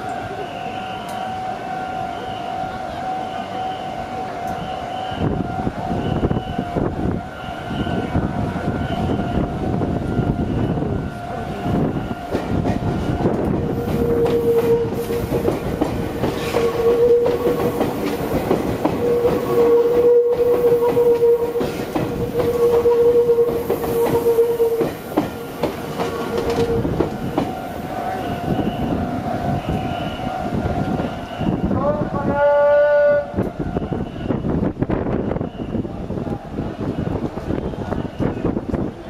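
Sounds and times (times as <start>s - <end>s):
level-crossing alarm: 0.0s - 36.0s
train wheels clattering: 11.5s - 31.6s.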